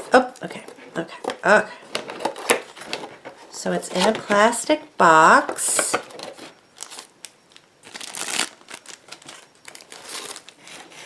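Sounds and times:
plastic packaging crinkling: 0:05.6 - 0:11.0.

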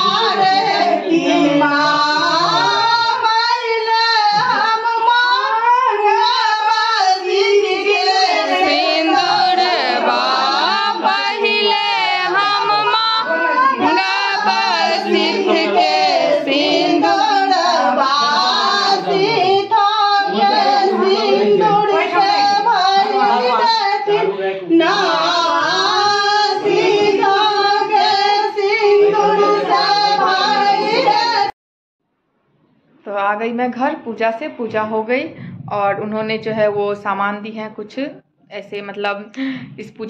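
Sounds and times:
women singing in chorus: 0:00.0 - 0:31.6.

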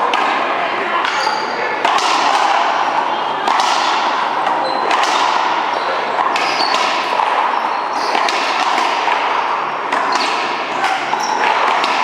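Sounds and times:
hall background noise: 0:00.0 - 0:12.0
sneakers squeaking on court floor: 0:01.1 - 0:01.8, 0:03.0 - 0:08.7, 0:09.4 - 0:12.0
ball smacking off racquets and wall: 0:01.8 - 0:02.8, 0:03.4 - 0:05.6, 0:06.2 - 0:12.0.

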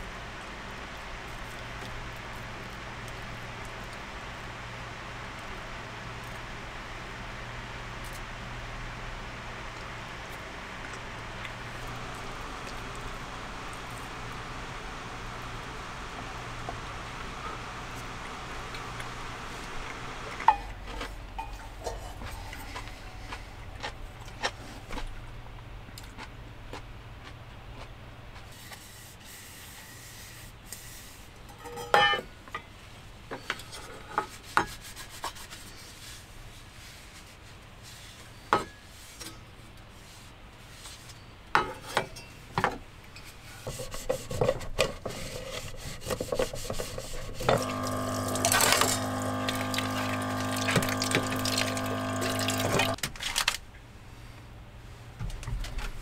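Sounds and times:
humming drone with rushing hiss: 0:47.5 - 0:53.0.

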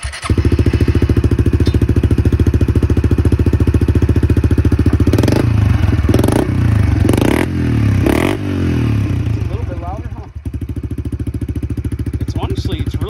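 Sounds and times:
engine revving: 0:00.0 - 0:10.3
motorcycle engine idling: 0:00.0 - 0:13.0.

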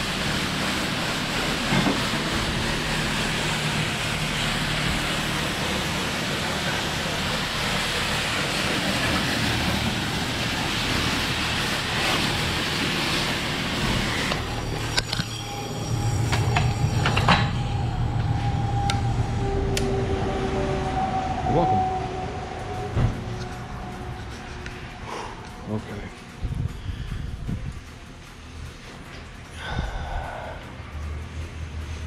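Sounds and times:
pressure washer spraying water: 0:00.0 - 0:15.1
low hum: 0:00.0 - 0:32.0.

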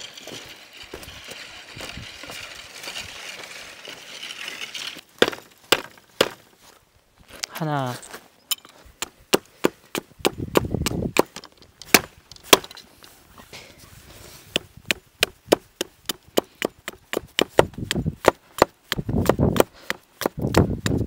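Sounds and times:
hatchet chopping wood: 0:05.2 - 0:06.4, 0:09.0 - 0:12.8, 0:14.5 - 0:21.0.

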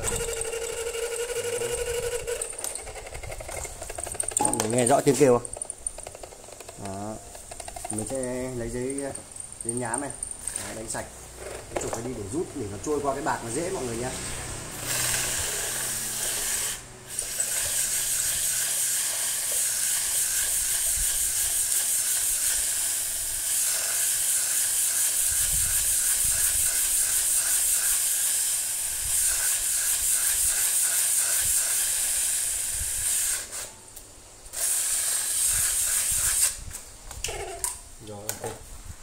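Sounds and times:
sandpaper rasping on metal: 0:14.9 - 0:33.7, 0:34.6 - 0:36.6.

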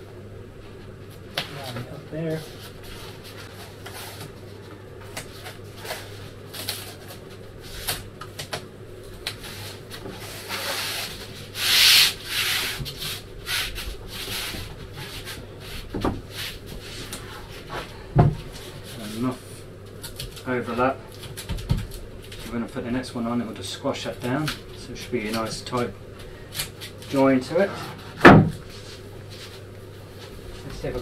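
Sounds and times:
hands rubbing foam sheet: 0:09.2 - 0:17.8.

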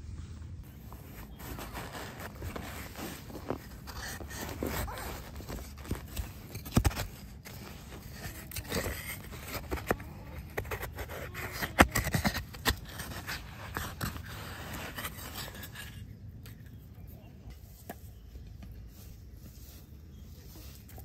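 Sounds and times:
coconut husk crackling: 0:00.6 - 0:21.0
knife scraping coconut meat: 0:01.2 - 0:16.0.

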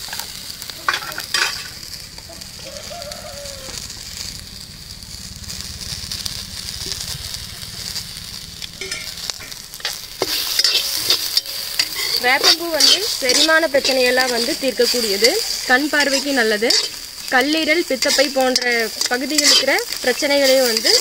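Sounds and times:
food sizzling in oil: 0:00.0 - 0:21.0
spatula stirring and scraping: 0:08.2 - 0:21.0.

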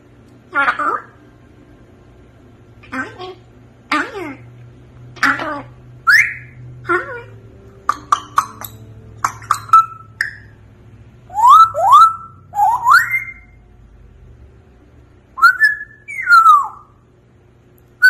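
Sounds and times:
parrot whistling: 0:05.2 - 0:06.6, 0:07.9 - 0:10.6, 0:11.3 - 0:13.6, 0:15.4 - 0:17.0.

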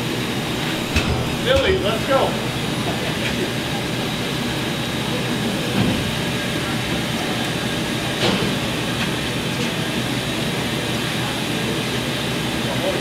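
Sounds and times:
breaker hammering concrete: 0:00.8 - 0:03.0
loud knocks: 0:00.8 - 0:03.1.

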